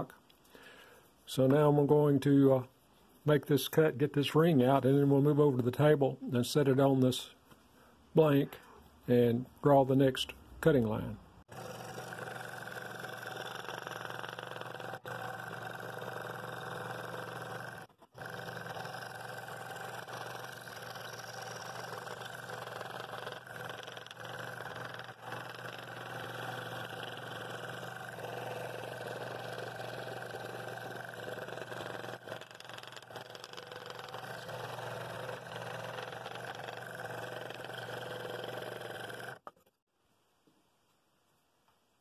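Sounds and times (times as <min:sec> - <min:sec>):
scroll saw cutting wood: 0:11.5 - 0:39.7.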